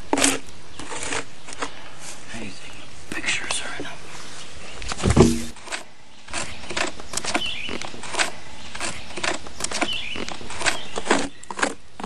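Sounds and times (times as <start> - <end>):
scraping dry wood: 0.0 - 2.2, 4.2 - 11.8
sharp knock: 5.0 - 5.6.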